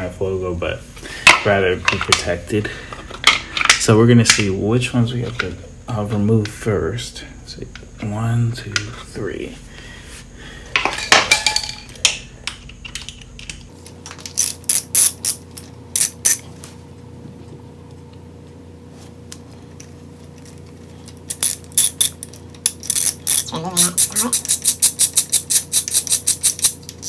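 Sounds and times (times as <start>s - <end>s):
hand ratchet clicking: 21.3s - 26.8s.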